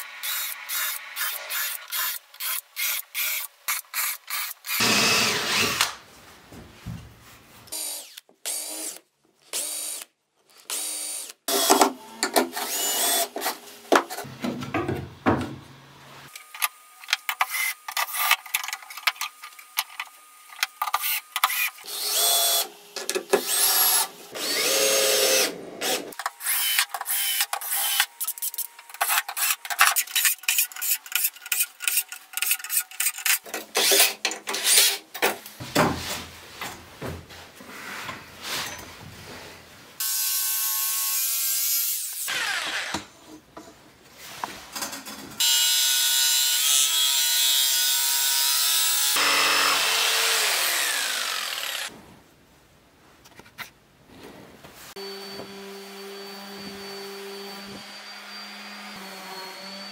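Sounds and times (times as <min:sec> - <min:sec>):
drill motor whirring: 0:04.4 - 0:05.9, 0:12.6 - 0:13.4, 0:21.0 - 0:22.7, 0:23.4 - 0:28.7, 0:42.2 - 0:43.0, 0:48.5 - 0:51.9
screws clicking and knocking: 0:26.1 - 0:35.0.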